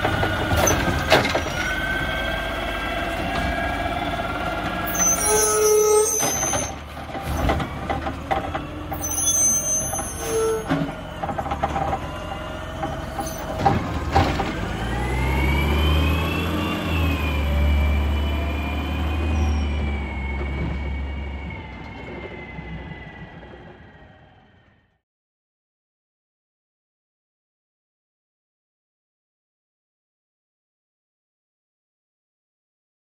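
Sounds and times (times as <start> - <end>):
diesel engine revving: 0.0 - 24.9.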